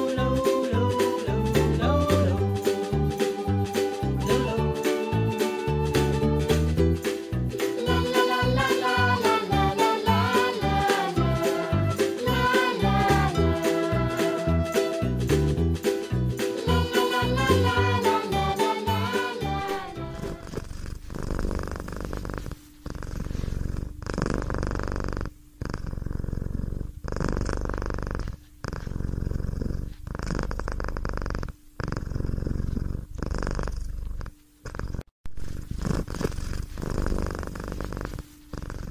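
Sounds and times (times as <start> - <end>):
cat purring: 7.8 - 15.1, 16.6 - 38.9.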